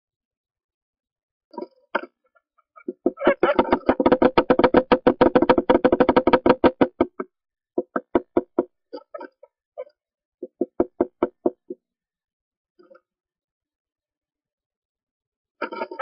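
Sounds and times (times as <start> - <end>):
woodpecker tapping on wood: 2.9 - 7.2, 7.8 - 8.7, 10.4 - 11.8.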